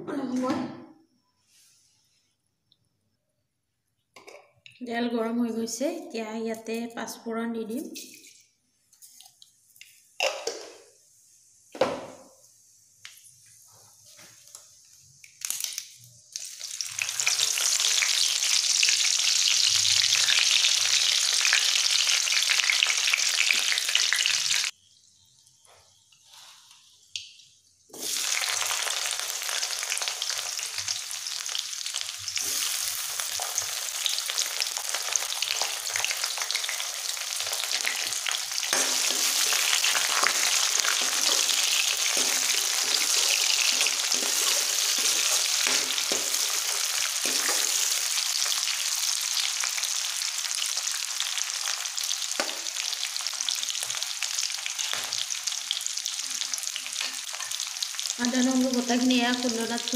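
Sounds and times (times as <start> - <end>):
hot oil sizzling: 8.1 - 59.9.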